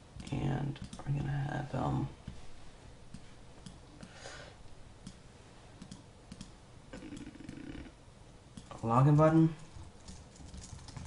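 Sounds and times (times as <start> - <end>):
faint computer mouse clicks: 5.8 - 6.5.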